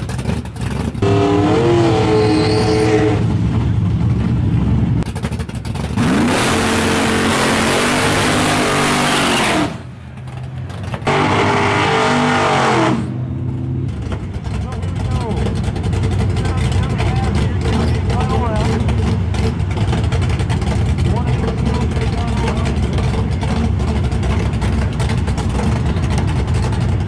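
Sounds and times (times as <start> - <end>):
tires spinning and hissing: 0.0 - 9.9, 10.9 - 13.2
truck engine at high revs: 0.0 - 27.0.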